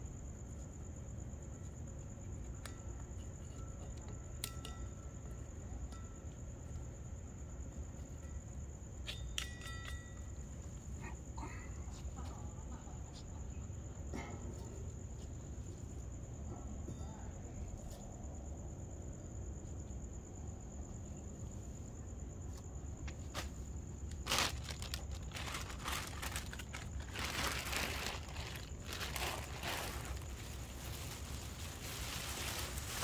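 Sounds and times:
low background hum: 0:00.0 - 0:33.0
plastic bags rustling: 0:24.1 - 0:33.0.

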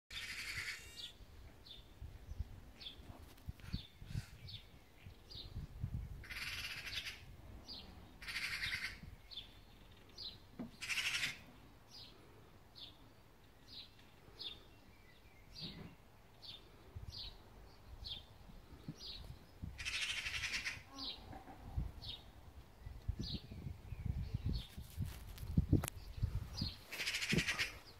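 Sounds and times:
magpie rattling chatter: 0:06.2 - 0:07.2, 0:08.2 - 0:09.0, 0:10.8 - 0:11.4, 0:19.8 - 0:20.8, 0:26.9 - 0:27.8.

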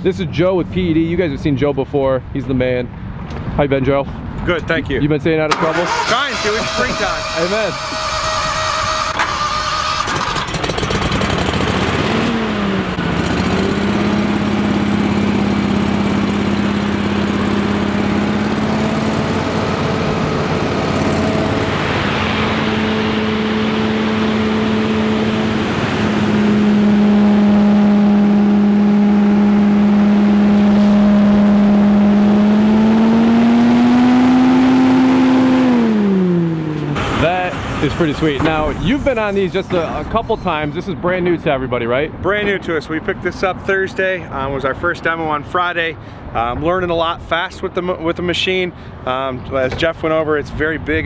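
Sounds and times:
leaf blower running: 0:05.5 - 0:34.3.

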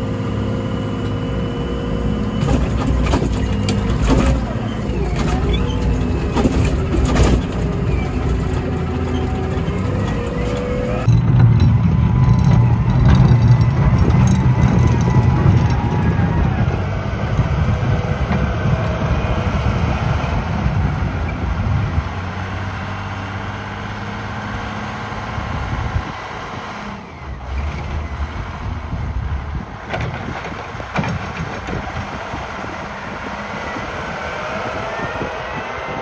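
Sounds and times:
wheel loader diesel engine running: 0:00.0 - 0:36.0.

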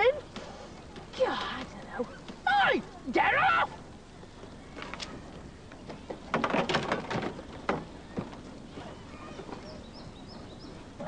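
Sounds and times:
birds chirping: 0:07.3 - 0:11.0.

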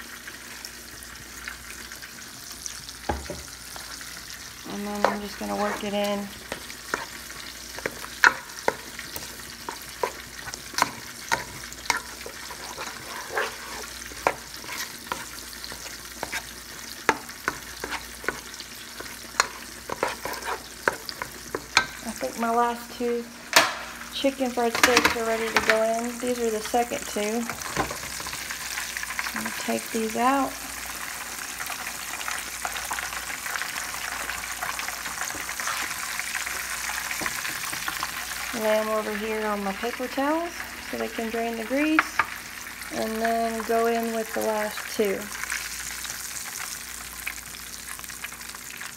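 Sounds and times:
steaks sizzling in oil: 0:00.0 - 0:48.9
potato masher squishing potatoes: 0:04.7 - 0:22.3.

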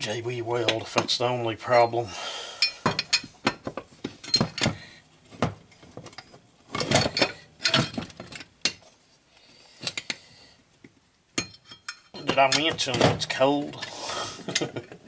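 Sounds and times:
metal tool clinking and clanking: 0:02.6 - 0:04.9, 0:06.0 - 0:08.9, 0:11.4 - 0:13.9.

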